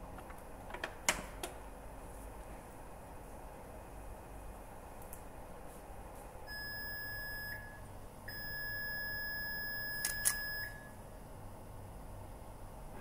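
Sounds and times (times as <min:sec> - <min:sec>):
high steady beep tone: 0:06.5 - 0:07.7, 0:08.3 - 0:10.8.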